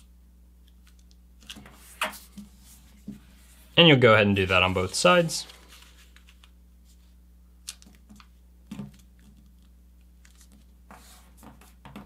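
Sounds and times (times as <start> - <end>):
paper being folded and creased: 4.4 - 8.3.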